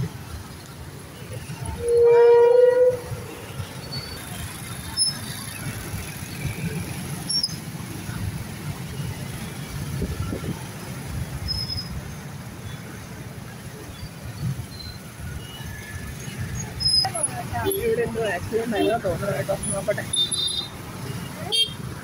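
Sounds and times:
motorbike engines in traffic: 0.0 - 22.0
vehicle horn: 1.7 - 3.2.

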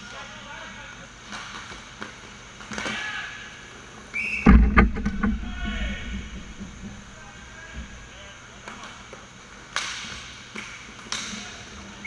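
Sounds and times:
heavy thump: 4.4 - 8.3
low rumble: 4.5 - 8.3
sticks and puck clacking: 9.7 - 11.8.

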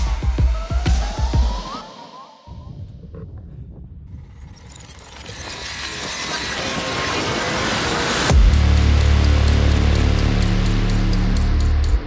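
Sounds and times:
electronic music: 0.0 - 3.6, 5.2 - 12.0
skate wheels rolling on asphalt: 4.1 - 8.3.

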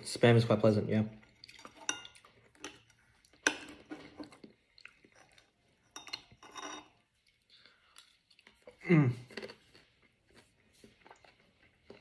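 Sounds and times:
chewing: 1.2 - 12.0
spoon clinking and scraping on plate: 1.4 - 4.5, 5.1 - 7.1.

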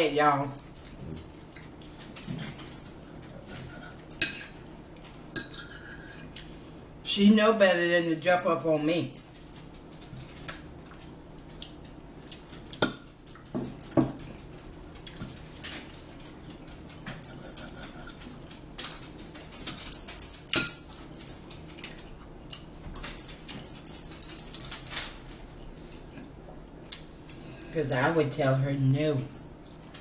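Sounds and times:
forks clinking on plates: 0.1 - 6.4, 12.2 - 26.0.

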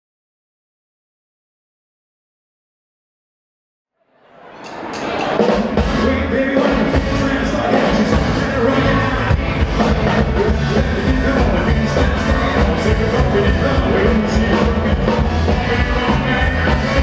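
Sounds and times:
drum kit: 4.6 - 17.0
keyboard: 4.6 - 17.0
electric guitar: 5.3 - 17.0
upright bass: 5.7 - 17.0.

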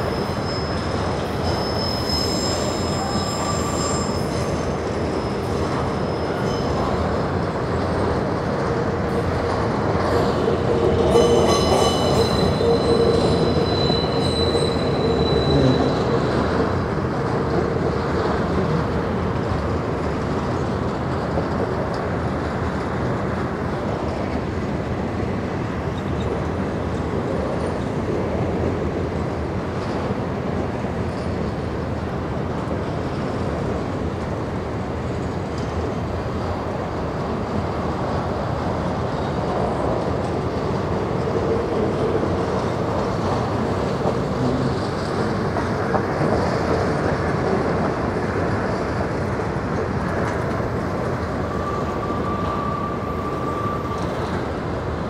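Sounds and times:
high squeal: 0.0 - 7.0, 11.0 - 16.4, 51.3 - 54.6.

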